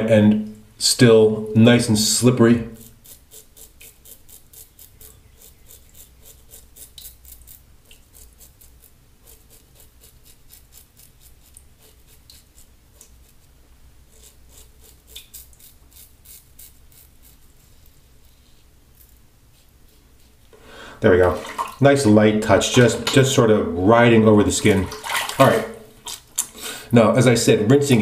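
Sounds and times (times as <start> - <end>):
razor scraping stubble: 2.0 - 20.6.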